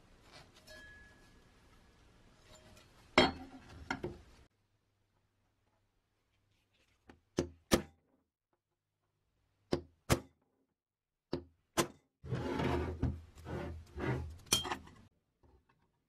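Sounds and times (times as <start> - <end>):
metal scraping on wooden bench: 12.2 - 14.4.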